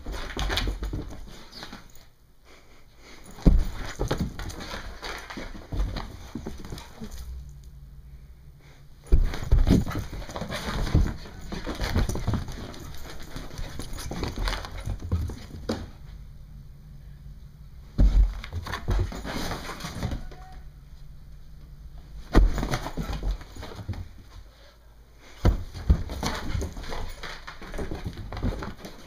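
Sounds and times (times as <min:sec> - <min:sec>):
footsteps on carpeted stairs: 0:00.0 - 0:02.0, 0:03.2 - 0:07.5, 0:09.0 - 0:16.2, 0:17.9 - 0:20.4, 0:22.2 - 0:24.5, 0:25.3 - 0:29.0.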